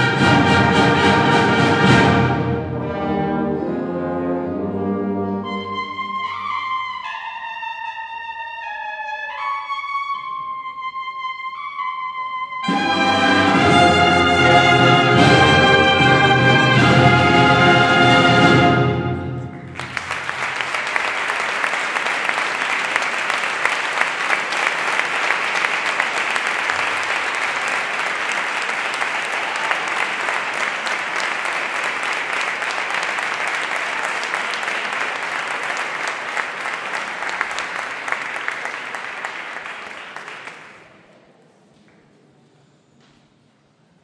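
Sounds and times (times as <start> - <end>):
brass band march: 0.0 - 6.6, 12.6 - 19.9
audience applauding: 19.4 - 41.1.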